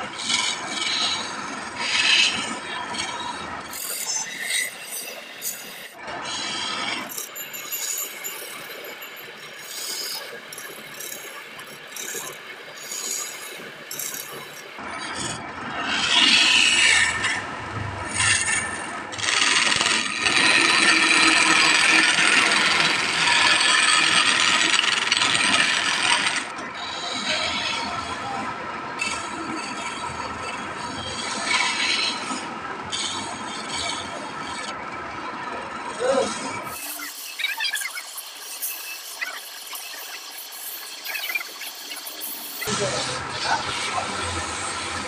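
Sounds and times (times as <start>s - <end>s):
chisel scraping spinning wood: 0.2s - 15.3s, 18.1s - 26.5s, 36.2s - 45.0s.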